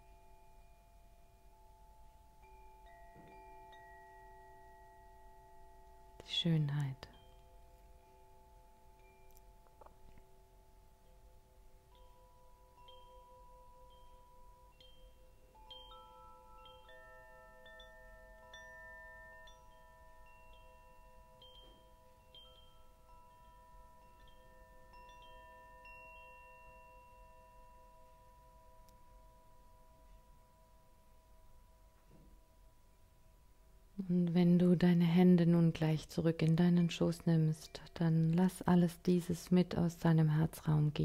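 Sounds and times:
chimes ringing softly: 0.0 - 33.3.

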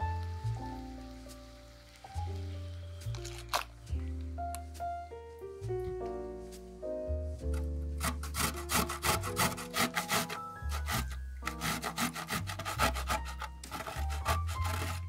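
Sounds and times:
background music: 0.0 - 15.0
grater rasping strokes: 8.0 - 15.0.

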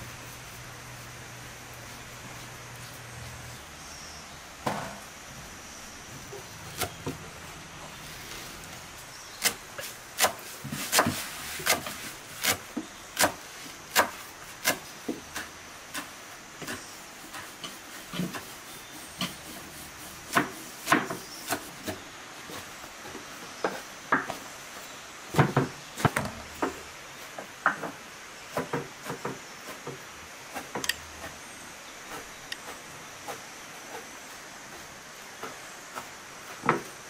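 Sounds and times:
knife chopping on wooden board: 10.2 - 16.8, 20.2 - 22.0.

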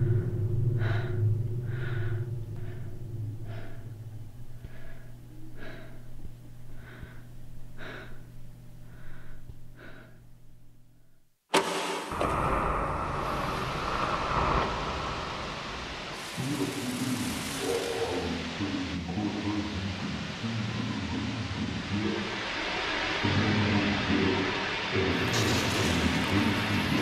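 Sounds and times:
heavy breaths: 0.0 - 10.4
low steady drone: 0.0 - 11.1, 12.0 - 27.0
loud burst of noise: 11.5 - 27.0.

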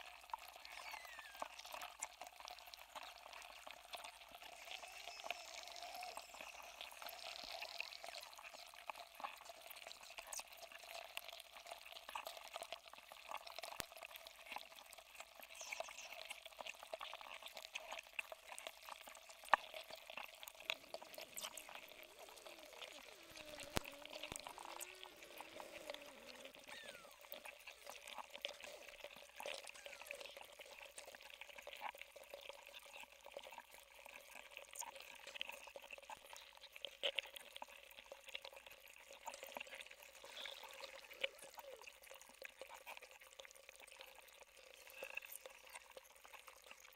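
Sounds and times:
ice crackling and ticking: 0.1 - 46.9
low wavering warbles: 4.5 - 8.3, 20.8 - 27.3.

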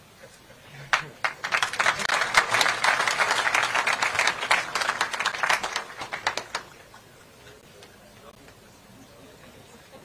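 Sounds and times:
audience applauding: 0.9 - 7.0.

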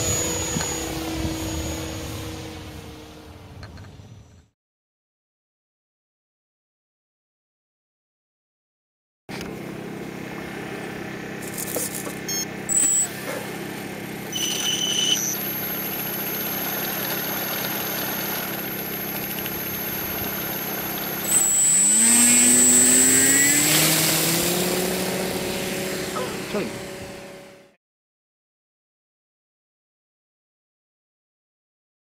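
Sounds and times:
model aircraft motors humming: 0.0 - 4.2, 9.3 - 27.8
motors rising whine: 0.0 - 4.5, 9.3 - 27.8
short high tones: 12.3 - 13.3, 14.3 - 15.9, 21.2 - 24.0.

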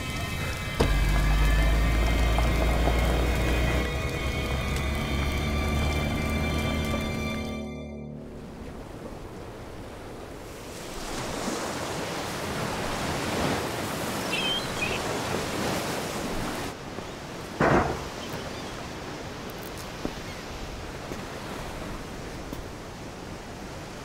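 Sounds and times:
short loud thud: 17.6 - 18.1.

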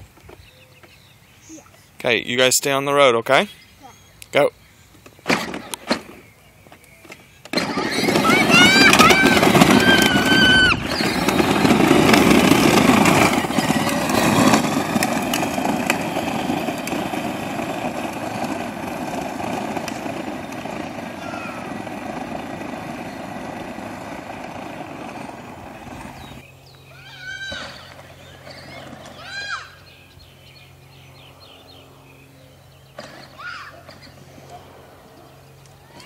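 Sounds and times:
wheels rolling on asphalt: 0.0 - 36.0
electric motors whirring: 7.4 - 26.4.

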